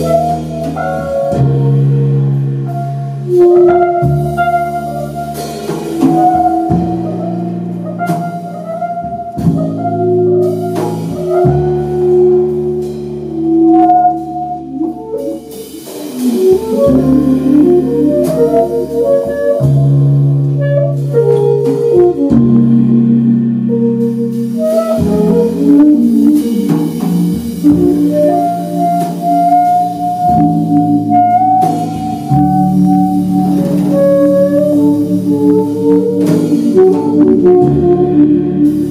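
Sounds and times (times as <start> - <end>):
double bass: 0.0 - 38.9
drum kit: 0.0 - 38.9
saxophone: 0.0 - 38.9
electric keyboard: 9.2 - 38.9.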